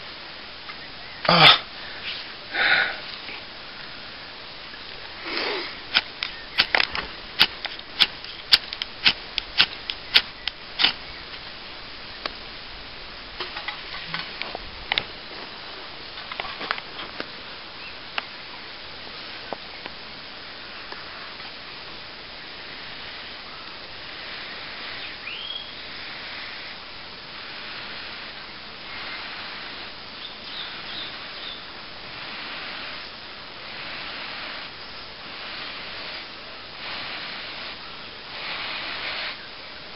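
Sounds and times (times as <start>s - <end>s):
faint steady hiss: 0.0s - 39.9s
ferro rod scraping: 5.1s - 11.2s.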